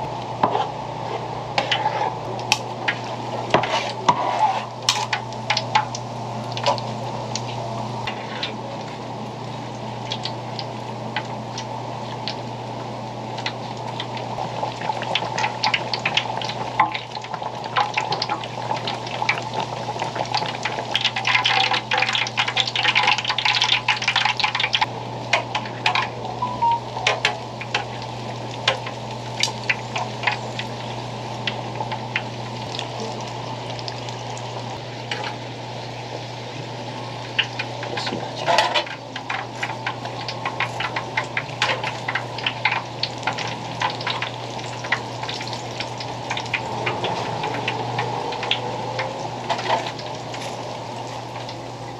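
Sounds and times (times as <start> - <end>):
oil bubbling and sizzling: 0.0 - 51.9
crackles and pops in oil: 27.0 - 30.8.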